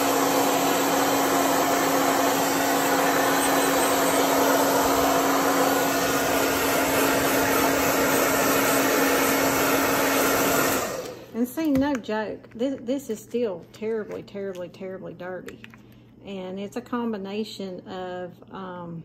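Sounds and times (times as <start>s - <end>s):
hair dryer blowing air: 0.0s - 11.4s.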